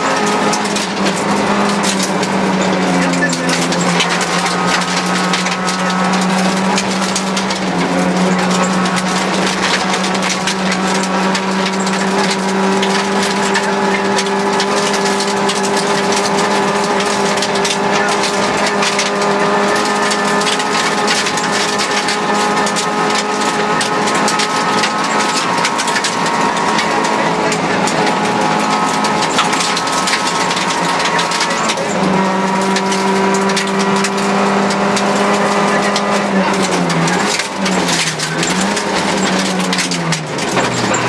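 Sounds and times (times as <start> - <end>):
gravel pinging against car underside: 0.0 - 41.0
rally car engine high revs: 0.0 - 41.0.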